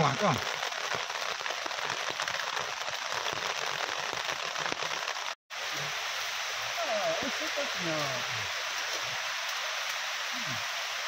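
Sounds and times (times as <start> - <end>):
ferns sizzling in a pot: 5.6 - 11.0.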